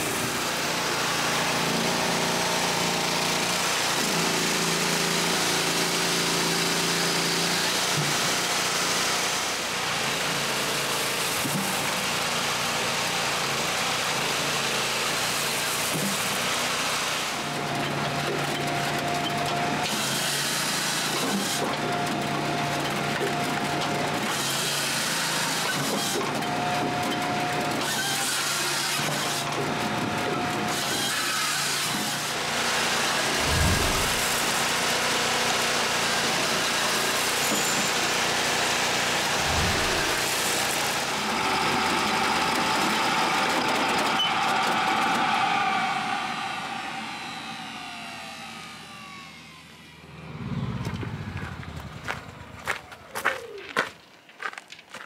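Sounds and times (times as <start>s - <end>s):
firewood processor working: 0.0s - 54.0s
dust blower rushing: 31.9s - 35.6s, 38.7s - 52.8s.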